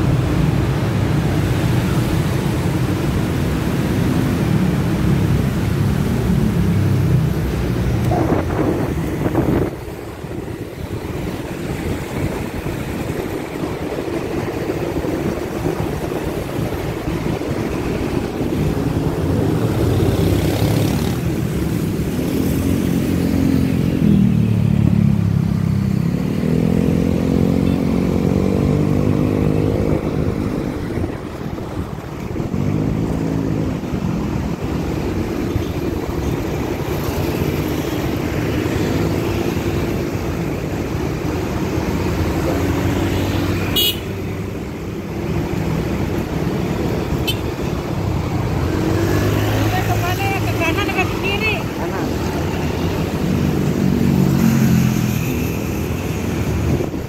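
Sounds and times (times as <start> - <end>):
motor scooter engines: 0.0 - 57.0
road and wind noise: 0.0 - 57.0.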